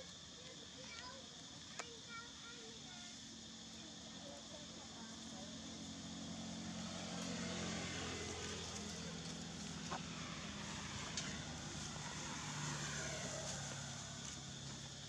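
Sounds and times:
vehicle engine drone: 0:02.8 - 0:15.0.

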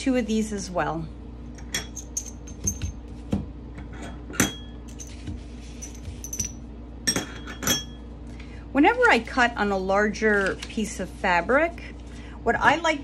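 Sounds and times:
metal tools clinking: 0:01.6 - 0:02.9, 0:04.4 - 0:08.0.

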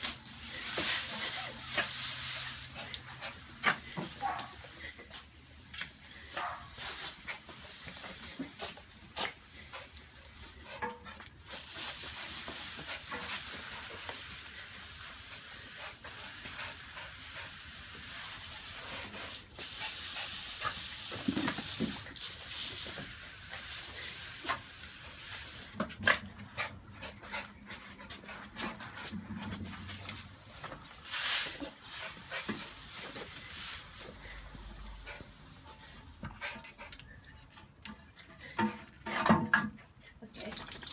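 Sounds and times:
garden hose spraying water: 0:00.0 - 0:26.0, 0:29.5 - 0:36.1.

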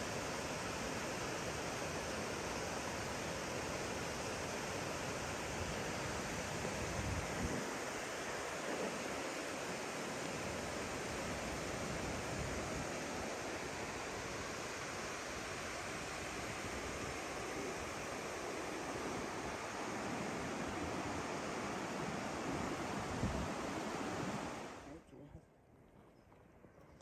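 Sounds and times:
river rushing over boulders: 0:00.0 - 0:24.9
wind rumbling on microphone: 0:06.0 - 0:09.1, 0:19.0 - 0:25.0.

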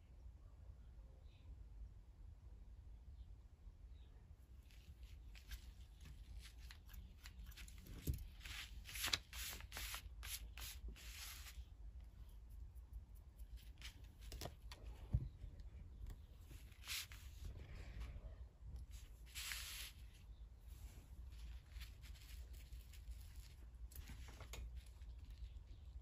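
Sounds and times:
twine and paper rustling: 0:04.6 - 0:11.6, 0:16.1 - 0:26.0.

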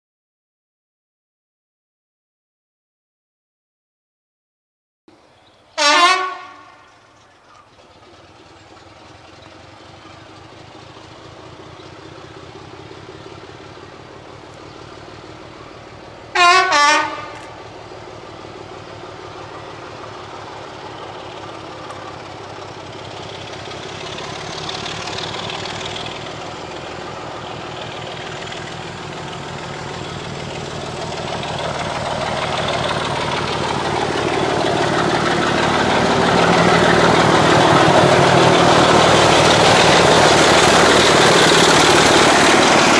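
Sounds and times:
locomotive engine and train running: 0:05.1 - 0:42.9
locomotive horn blasts: 0:05.8 - 0:06.9, 0:16.3 - 0:17.6.

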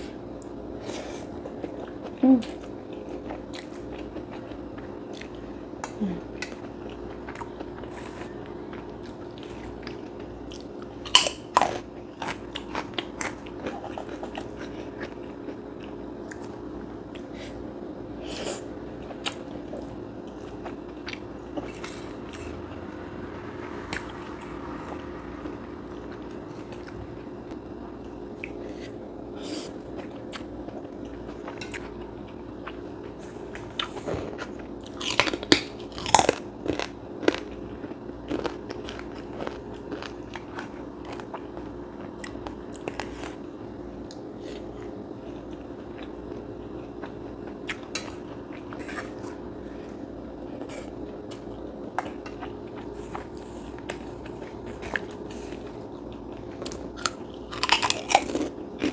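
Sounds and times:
steady low hum: 0:00.0 - 0:58.9
crackers crunching: 0:00.8 - 0:17.3, 0:24.8 - 0:58.9
chewing noodles: 0:28.0 - 0:43.4, 0:44.0 - 0:58.9.

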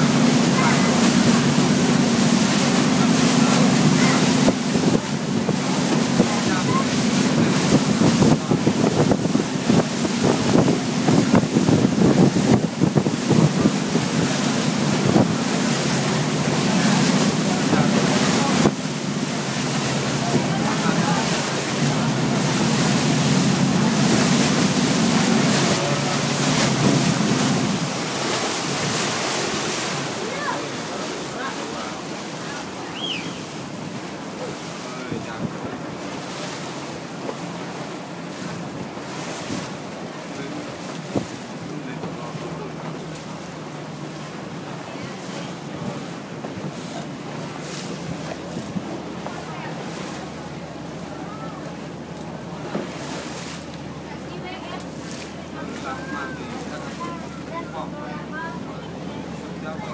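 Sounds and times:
boat engine humming: 0:00.0 - 0:59.9
water rushing: 0:00.0 - 0:59.9
wind on microphone: 0:03.9 - 0:15.8.

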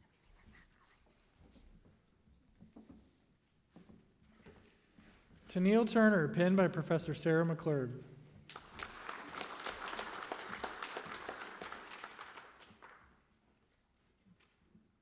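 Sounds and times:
audience applauding: 0:08.5 - 0:13.1.

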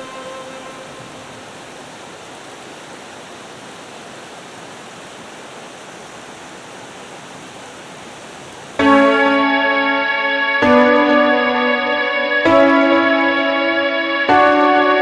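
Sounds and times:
music: 0:00.0 - 0:01.3, 0:08.8 - 0:15.0
heavy rain falling: 0:00.0 - 0:15.0.

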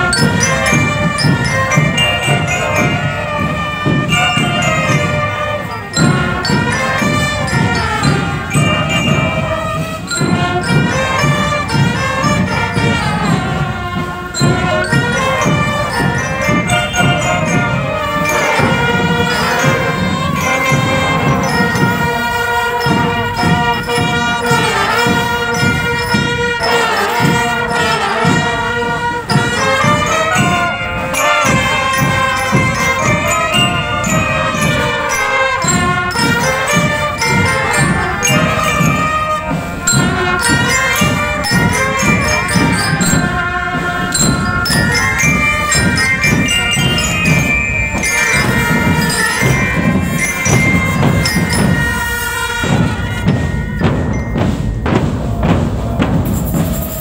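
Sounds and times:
bass drums beating: 0:00.0 - 0:57.0
brass horns playing march: 0:00.0 - 0:57.0.

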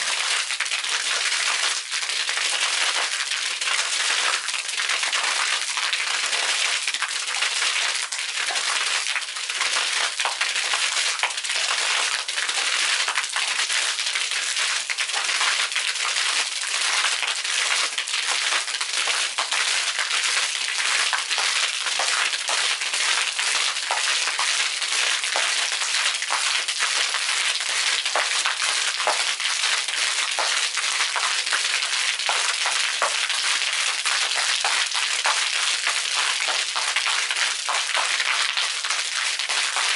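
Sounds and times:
fountain water splashing into pool: 0:00.0 - 0:39.9
droplets spattering on concrete: 0:19.0 - 0:39.9.

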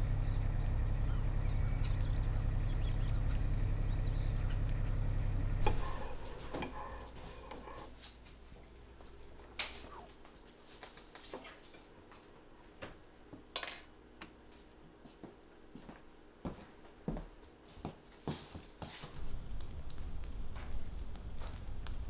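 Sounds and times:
faint steady hum: 0:00.0 - 0:10.9, 0:19.1 - 0:22.0
clinks and knocks of dishes: 0:13.6 - 0:14.0.

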